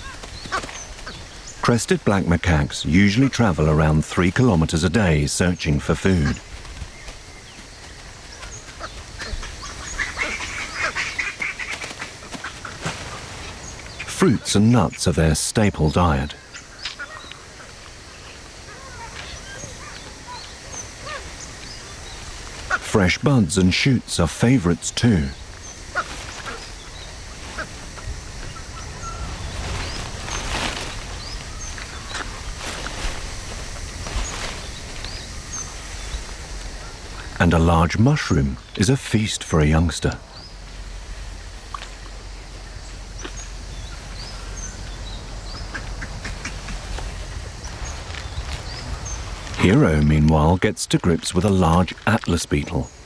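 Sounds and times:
rustling and snapping twigs: 0.0 - 1.4, 6.4 - 14.1, 16.7 - 22.8, 25.5 - 28.6, 29.3 - 37.3, 45.6 - 49.6
faint forest background: 0.0 - 53.0
steady low rumble: 20.0 - 53.0.

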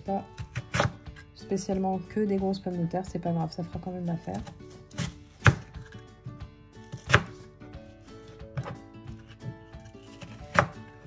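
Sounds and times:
knife slicing potatoes: 0.0 - 1.3, 4.2 - 6.2, 6.8 - 11.0
background music: 0.0 - 11.0
knife hitting cutting board: 4.4 - 5.9, 6.9 - 7.3, 8.6 - 9.4, 10.2 - 10.8.

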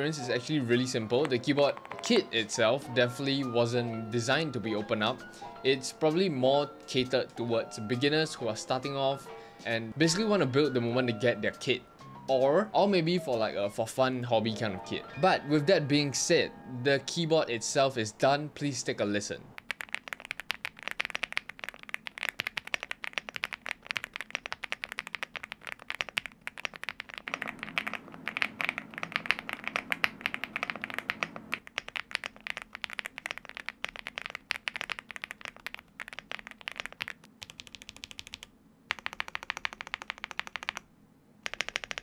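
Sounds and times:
mechanical keyboard typing: 0.7 - 2.2, 19.6 - 40.8, 41.4 - 42.0.

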